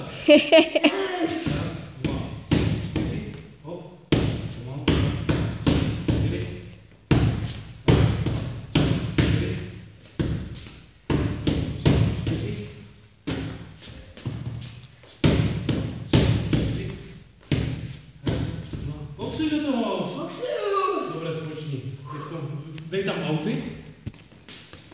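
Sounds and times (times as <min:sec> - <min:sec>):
boxing gloves hitting mitts: 0:01.5 - 0:03.4, 0:04.1 - 0:12.6, 0:13.2 - 0:14.5, 0:15.2 - 0:18.9.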